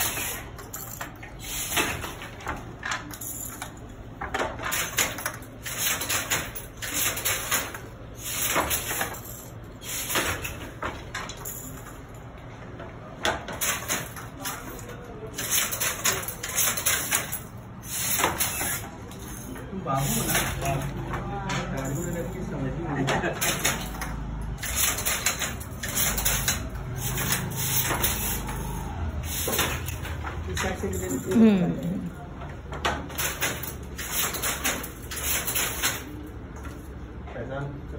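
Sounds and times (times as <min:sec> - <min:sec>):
wooden loom clacking and rattling: 0:00.0 - 0:11.9, 0:13.2 - 0:22.4, 0:23.0 - 0:31.6, 0:32.5 - 0:36.8.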